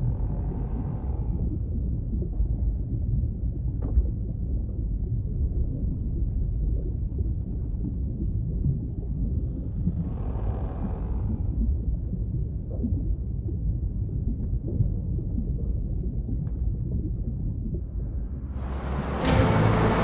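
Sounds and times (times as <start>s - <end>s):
deep underwater rumble: 0.0s - 20.0s
loud rushing noise: 18.6s - 20.0s.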